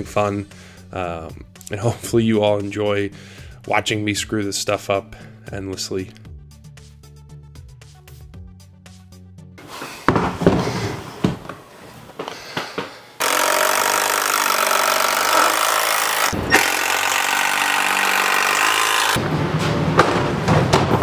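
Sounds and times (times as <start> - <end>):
impact driver hammering: 13.2 - 19.2.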